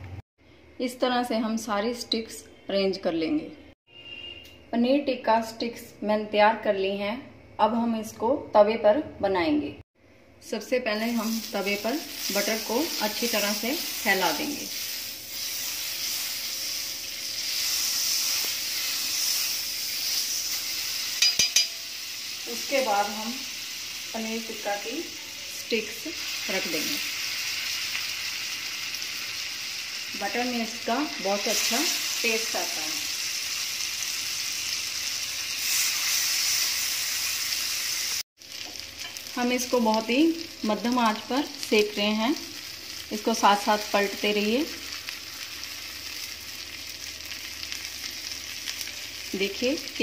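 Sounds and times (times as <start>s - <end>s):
butter sizzling on a griddle: 11.1s - 41.2s, 41.8s - 50.0s.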